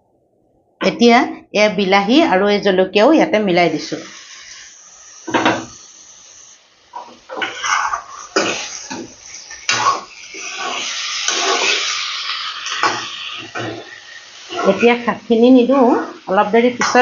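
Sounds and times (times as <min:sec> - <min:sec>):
food sizzling: 0:02.9 - 0:17.0
steel ladle scraping metal pan: 0:07.0 - 0:15.0.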